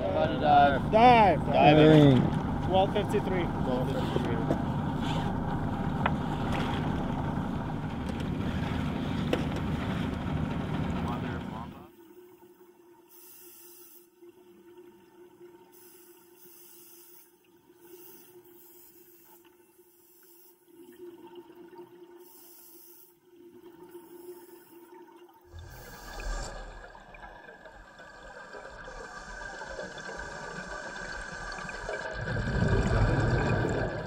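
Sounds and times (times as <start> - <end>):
faint underwater hum: 0.0 - 34.0
diver's exhaled air bubbles: 25.5 - 34.0.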